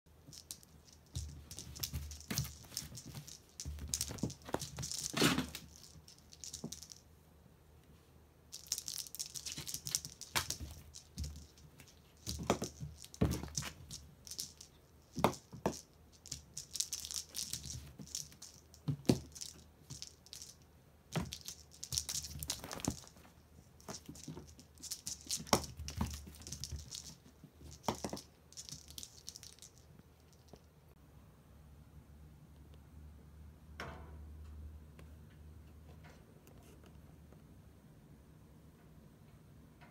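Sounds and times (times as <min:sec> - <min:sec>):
kitten claws rustling on rug: 0:00.3 - 0:07.0, 0:08.5 - 0:20.5, 0:21.1 - 0:29.8.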